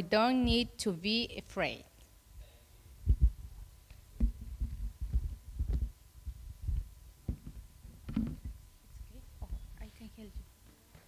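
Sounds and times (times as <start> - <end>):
dull thumps and bumps: 4.2 - 6.0, 6.7 - 8.6.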